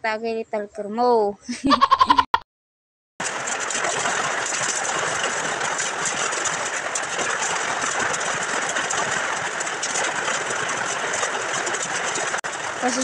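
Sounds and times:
heavy rain on metal roof: 3.2s - 13.0s.

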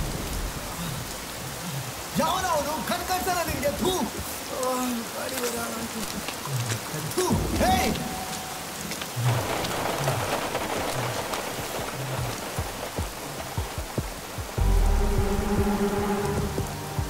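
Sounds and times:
rain on a wet road: 0.0s - 17.0s
low pulse: 14.6s - 17.0s.

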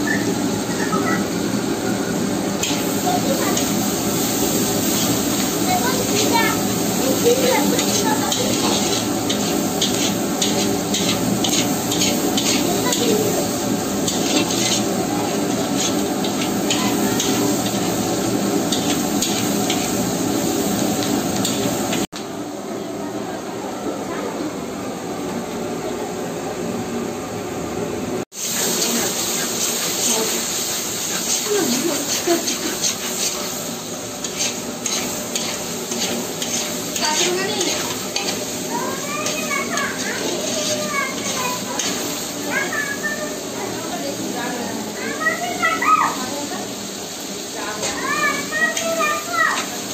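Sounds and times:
onions sizzling in pan: 0.0s - 23.1s, 28.3s - 49.9s
metal spatula scraping pan: 7.3s - 13.4s, 14.0s - 18.1s, 31.1s - 33.6s, 34.2s - 38.5s, 39.2s - 42.1s.

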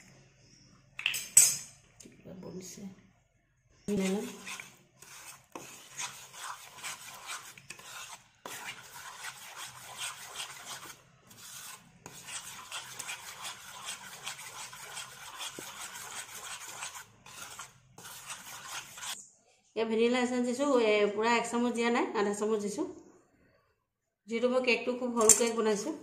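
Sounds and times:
spoon beating batter in a bowl: 3.9s - 19.2s.

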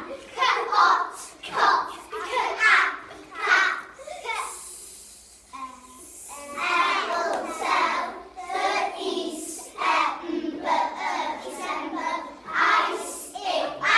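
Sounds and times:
children chanting together: 6.3s - 13.9s.

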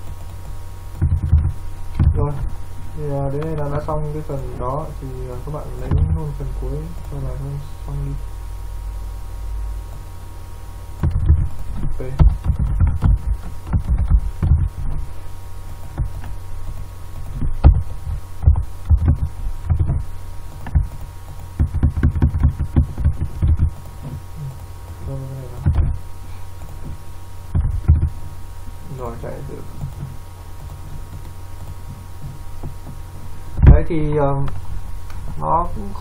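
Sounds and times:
keyboard typing thuds: 0.0s - 2.6s, 11.0s - 28.4s, 29.0s - 33.9s
steady electrical hum: 0.0s - 36.0s.

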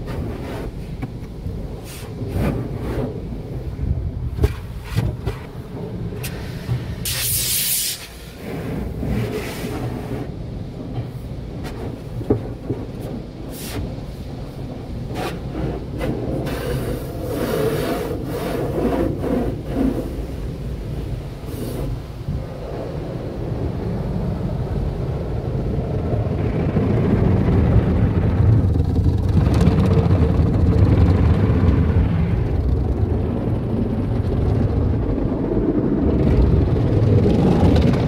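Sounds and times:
car wash brushes slapping: 0.0s - 3.6s, 11.5s - 22.0s
steady low rumble: 0.0s - 38.0s
water spray hissing: 6.2s - 8.4s, 13.5s - 13.8s.

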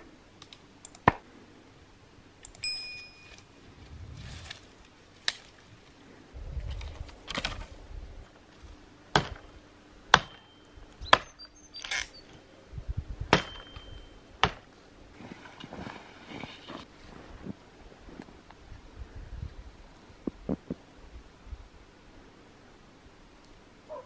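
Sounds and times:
twigs rustling: 3.3s - 8.8s
dry branches snapping: 4.4s - 5.7s.

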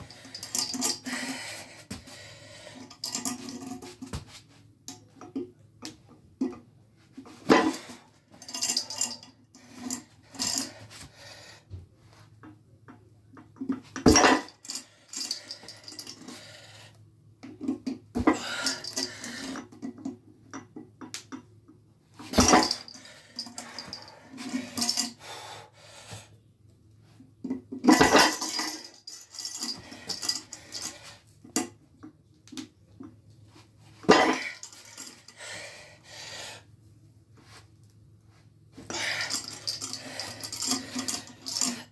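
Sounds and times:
chain links jangling: 0.0s - 1.5s, 2.7s - 4.1s, 7.5s - 10.8s, 14.0s - 16.4s, 18.3s - 19.6s, 22.3s - 25.2s, 27.8s - 31.2s, 34.1s - 35.4s, 38.9s - 41.9s.

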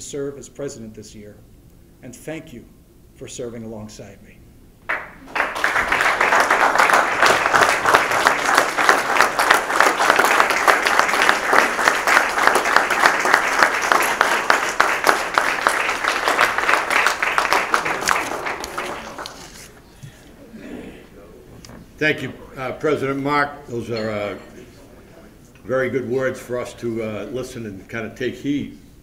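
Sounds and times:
audience applauding: 4.9s - 19.7s.

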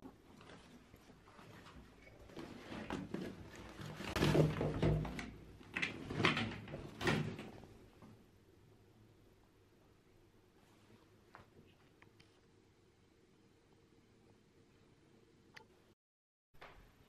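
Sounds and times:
clothes rustling in plastic basket: 0.1s - 7.8s.

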